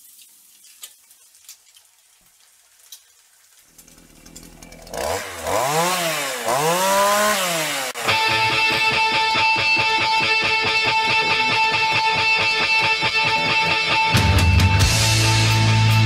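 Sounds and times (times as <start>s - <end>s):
chainsaw engine revving: 3.8s - 10.1s.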